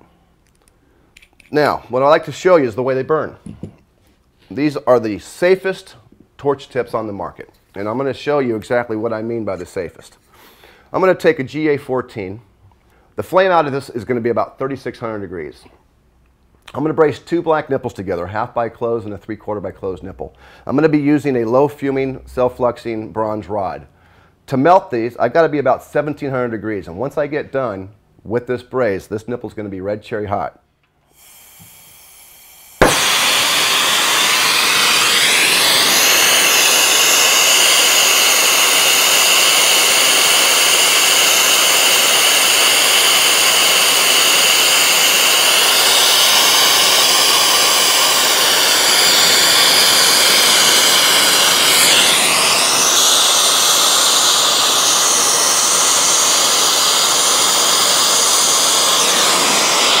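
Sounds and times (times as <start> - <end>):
torch flame hissing: 31.1 - 60.0.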